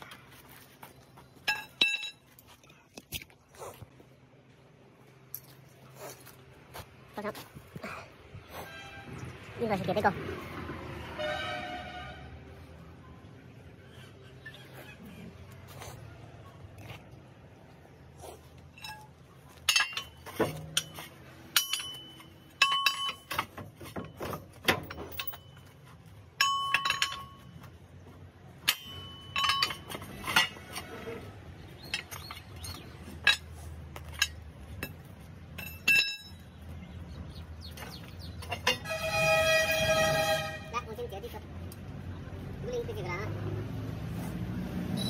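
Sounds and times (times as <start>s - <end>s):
pry bar clanking on metal track: 18.8s - 25.6s, 28.6s - 30.9s, 37.8s - 39.1s.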